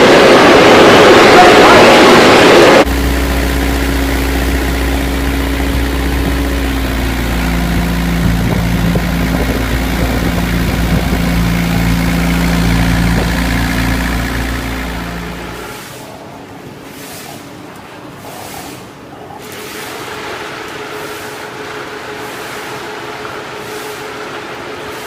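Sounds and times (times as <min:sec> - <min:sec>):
rolling machine droning: 0:00.0 - 0:16.2.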